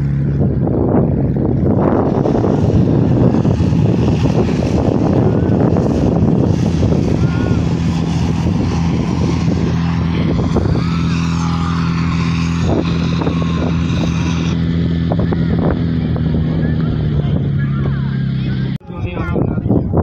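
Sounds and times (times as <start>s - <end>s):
pump engine running: 0.0s - 18.8s.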